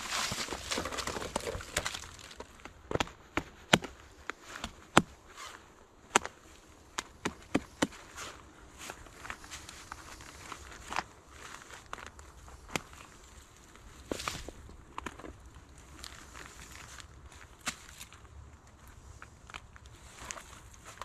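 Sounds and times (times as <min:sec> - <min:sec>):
bark being pulled off log: 0:00.0 - 0:03.1.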